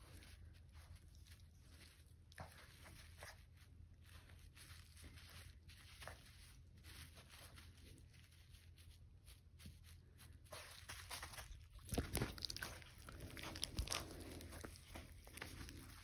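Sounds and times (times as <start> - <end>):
puppy rustling a rope toy: 0.0 - 16.0.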